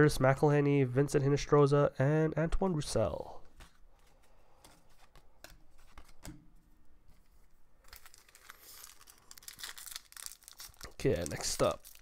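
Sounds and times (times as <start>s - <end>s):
wrapper crinkling: 7.8s - 12.0s.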